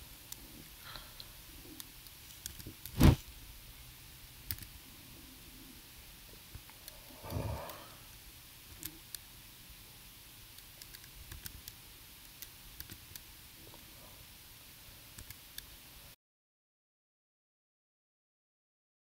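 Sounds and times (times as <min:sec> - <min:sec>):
computer keys clicking: 0:04.5 - 0:04.7, 0:10.6 - 0:13.2, 0:15.2 - 0:15.7.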